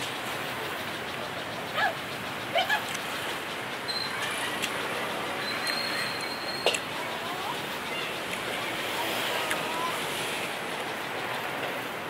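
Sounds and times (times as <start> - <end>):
outdoor street noise: 0.0 - 12.0
thin high squeal: 3.8 - 4.3, 5.4 - 6.7.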